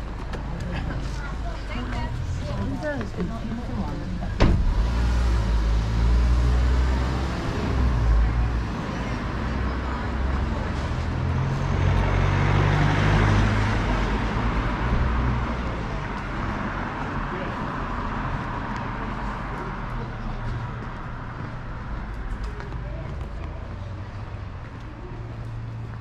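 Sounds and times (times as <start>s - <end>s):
traffic noise: 0.0s - 26.0s
car engine pulling away: 4.3s - 8.7s
car door shutting: 4.4s - 4.8s.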